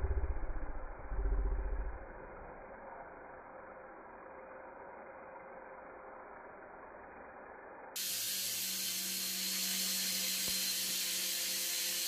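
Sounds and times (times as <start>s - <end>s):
toy drone propellers hissing: 3.9s - 12.0s.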